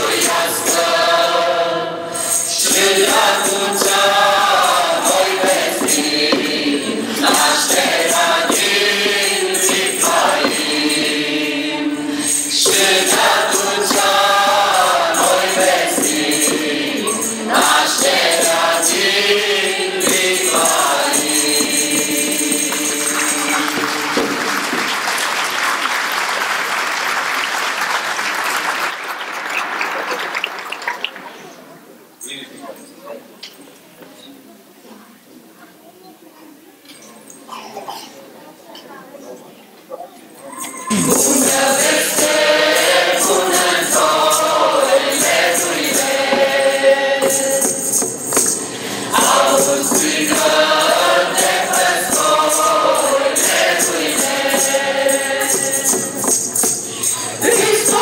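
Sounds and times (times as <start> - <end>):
mixed choir singing a carol: 0.0 - 25.9, 40.6 - 58.0
tambourine: 2.1 - 25.6, 40.6 - 58.0
audience applauding: 22.7 - 31.8.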